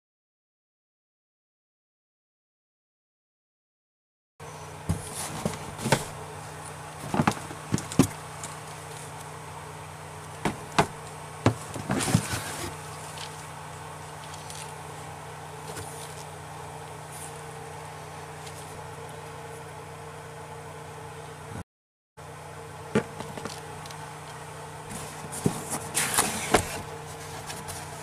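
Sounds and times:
steady low hum: 4.4 - 21.6, 22.2 - 28.0
cardboard boxes knocking: 4.9 - 6.2, 7.0 - 8.2, 10.4 - 12.7.

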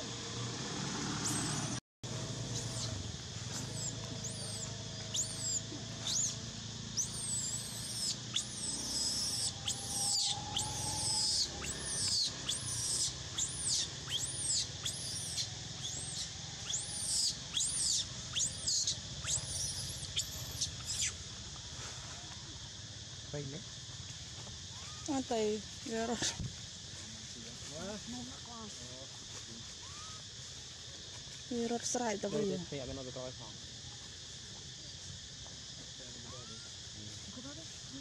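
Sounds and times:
baby monkey screaming: 2.5 - 3.0, 3.6 - 6.4, 7.0 - 21.2, 24.7 - 25.2, 29.8 - 30.2, 36.4 - 36.7.

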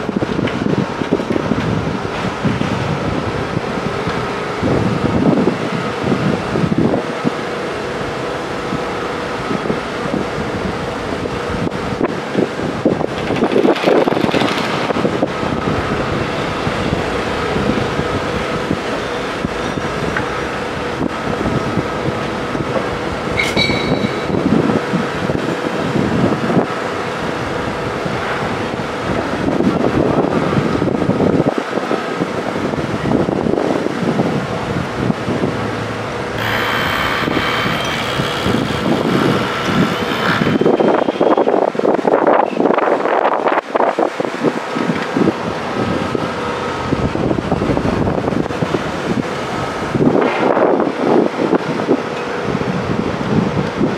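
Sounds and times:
steady machine hum: 0.0 - 53.9
wind rumbling on microphone: 0.0 - 53.9.

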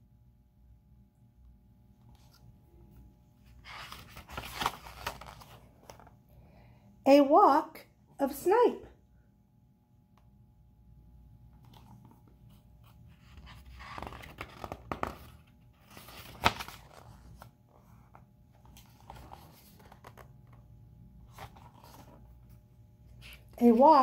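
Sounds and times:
book pages rustling: 2.0 - 6.2, 11.5 - 24.0.

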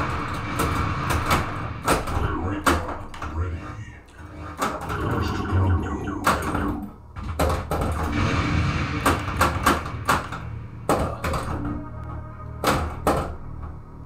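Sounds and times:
pinball flippers and solenoids firing: 0.0 - 3.2, 4.6 - 11.8, 12.6 - 13.8
synthesized game music and effects: 4.8 - 7.1
pinball ball striking targets: 9.0 - 11.8.

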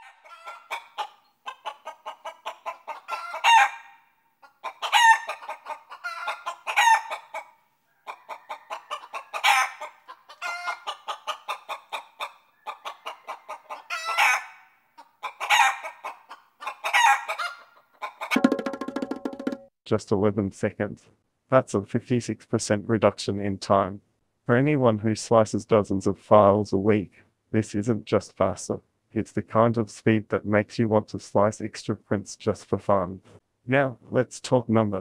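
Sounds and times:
chicken clucking and squawking: 0.0 - 18.5.

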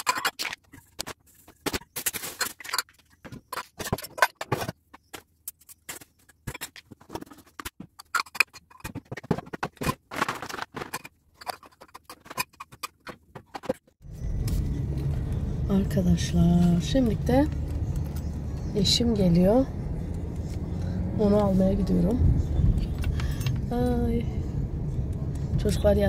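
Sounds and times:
kitchenware clinking and knocking: 0.0 - 5.2.

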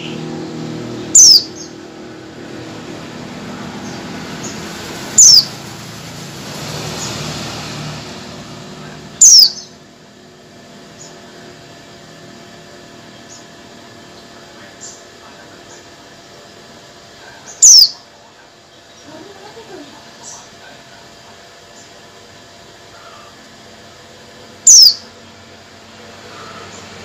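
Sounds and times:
bird calls sliding downward: 1.1 - 1.7, 5.1 - 5.5, 9.2 - 9.7, 17.6 - 18.0, 24.6 - 25.1
faint high bird chips: 1.2 - 1.7, 3.8 - 5.5, 9.2 - 9.8, 17.5 - 18.0, 24.6 - 25.1.

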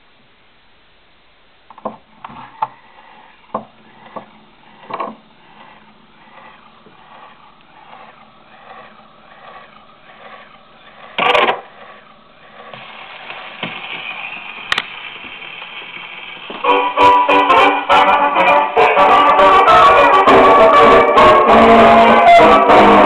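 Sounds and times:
record swishing as disc turns: 2.0 - 16.9
dance-band music: 16.6 - 23.0.

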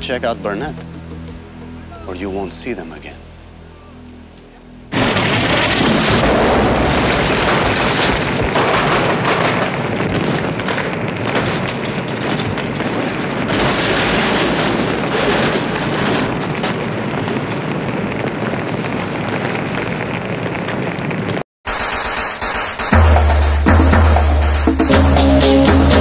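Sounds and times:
car explosion: 4.9 - 21.4
fire burning: 4.9 - 21.8
fire crackling and popping: 4.9 - 22.2.

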